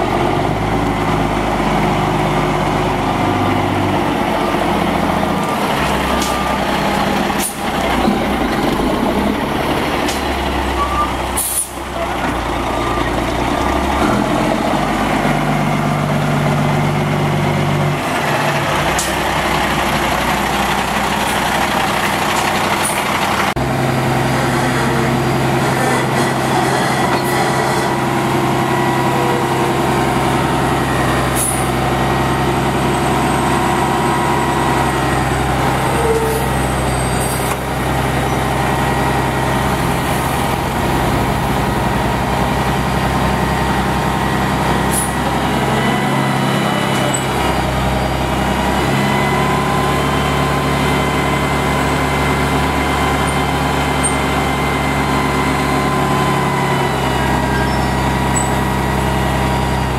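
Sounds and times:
diesel truck engine running: 0.0s - 59.9s
air brake hisses: 11.4s - 11.8s.

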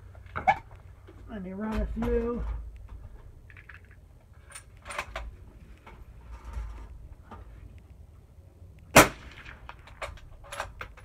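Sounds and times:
suppressed rifle shot: 8.9s - 9.8s.

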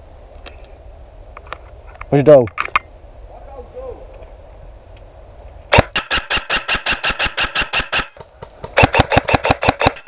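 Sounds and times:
airsoft rifle rapid shots: 5.7s - 10.0s.

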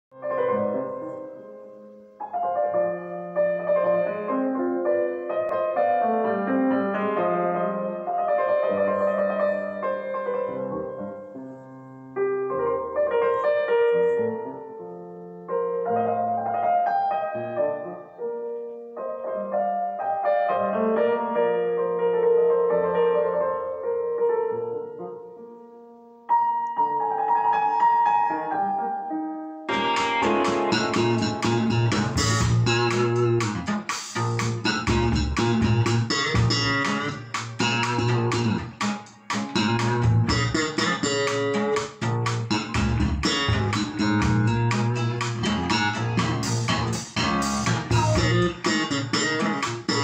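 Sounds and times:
solo piano music over speakers: 0.1s - 38.8s.

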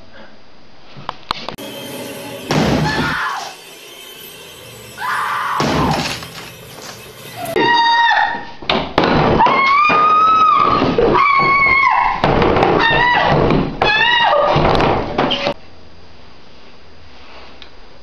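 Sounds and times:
woman screaming: 2.8s - 3.6s, 5.0s - 6.1s, 7.4s - 8.5s, 9.4s - 12.2s, 12.8s - 14.6s.

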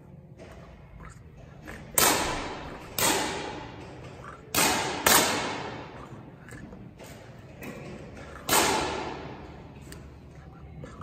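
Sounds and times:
air pistol shots echoing: 2.0s - 3.9s, 4.5s - 6.0s, 8.4s - 9.6s.

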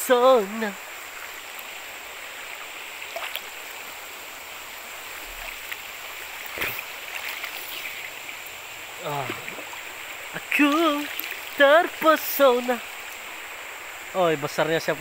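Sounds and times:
river water flowing: 0.0s - 15.0s
person splashing in water: 6.4s - 7.7s.

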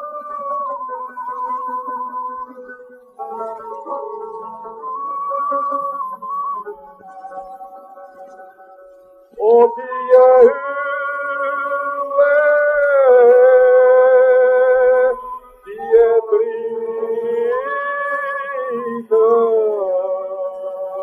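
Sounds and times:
man singing ornamented phrases: 9.4s - 21.0s.

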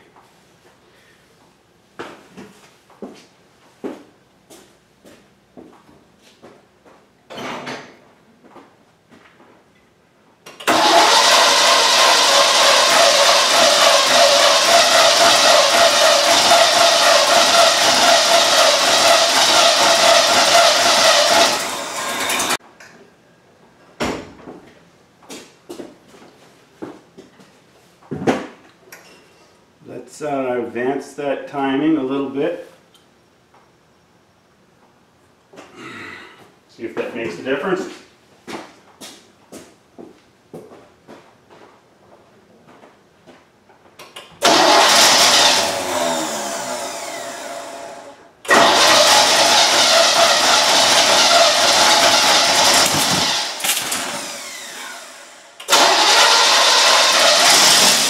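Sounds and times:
engine cranking: 10.6s - 22.6s, 44.4s - 47.4s, 48.5s - 58.0s.

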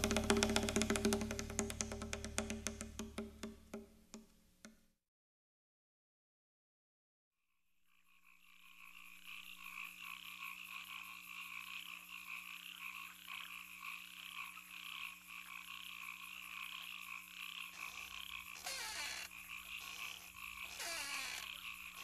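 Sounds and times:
frog-like croaking chorus: 7.9s - 22.0s.

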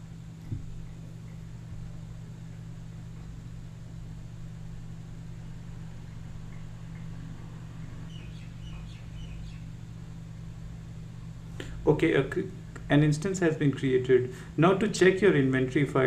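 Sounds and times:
low room hum: 0.0s - 16.0s
faint bird chirps: 8.1s - 9.7s.

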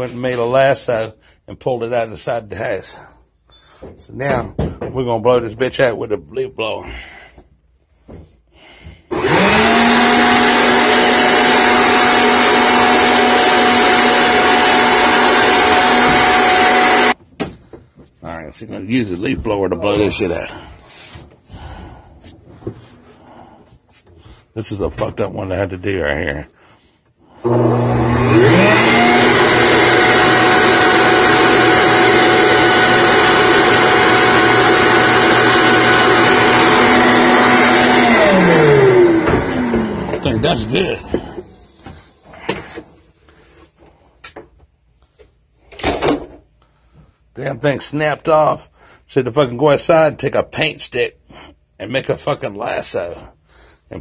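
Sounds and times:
leaf blower motor whine: 9.1s - 17.2s, 27.4s - 42.8s.

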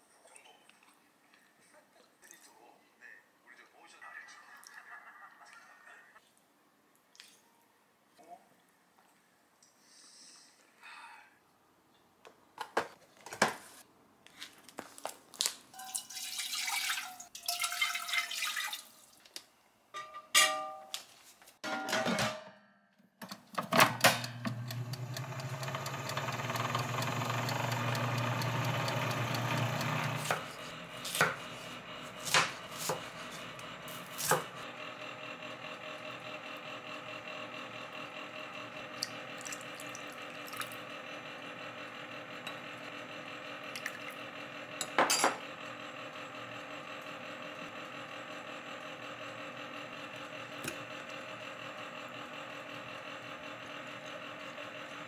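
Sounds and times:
oven clicks: 23.2s - 30.6s
oven fan humming: 23.3s - 55.0s.

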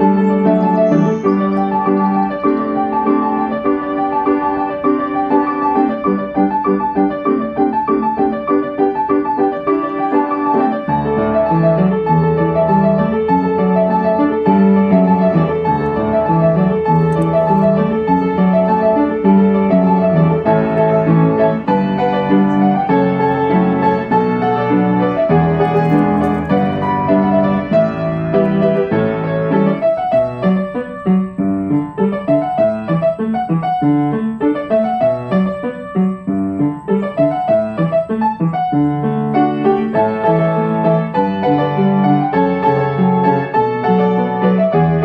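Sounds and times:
piano music: 0.0s - 45.0s.

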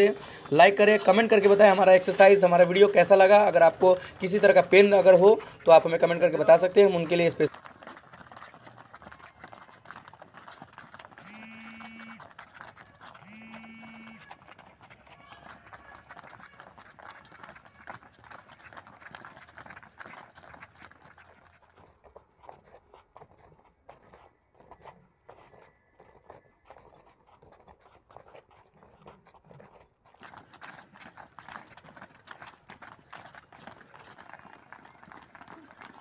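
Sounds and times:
footsteps patting on pavement: 0.0s - 36.0s.

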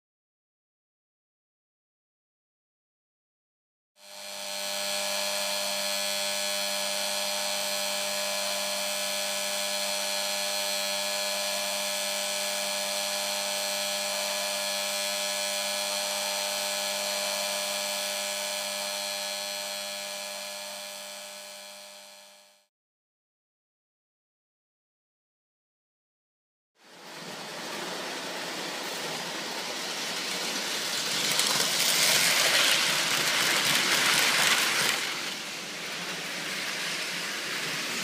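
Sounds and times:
steady electric buzz: 4.0s - 22.7s.

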